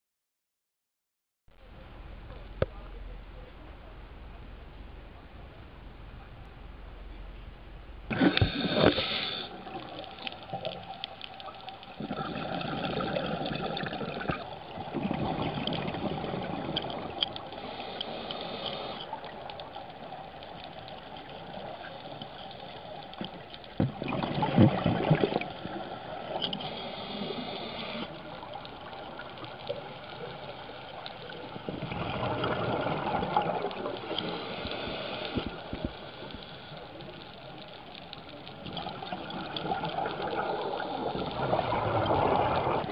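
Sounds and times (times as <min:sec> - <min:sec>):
regulator hiss: 0:08.1 - 0:09.7, 0:34.0 - 0:37.7
underwater regulator bubbling: 0:08.1 - 0:37.2.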